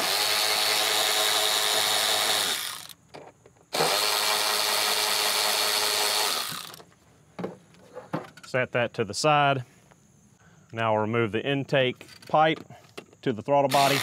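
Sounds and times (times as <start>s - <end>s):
cordless ratchet running: 0.0s - 3.0s, 3.8s - 6.8s, 13.7s - 14.0s.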